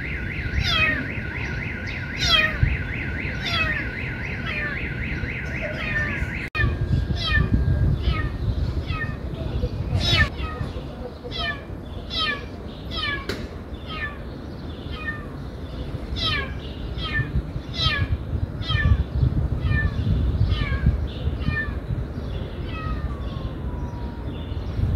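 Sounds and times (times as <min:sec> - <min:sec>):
kittens meowing: 0:00.6 - 0:01.1, 0:02.2 - 0:02.6, 0:03.4 - 0:03.9, 0:05.8 - 0:14.3, 0:14.9 - 0:15.4, 0:16.2 - 0:21.8, 0:22.6 - 0:24.5.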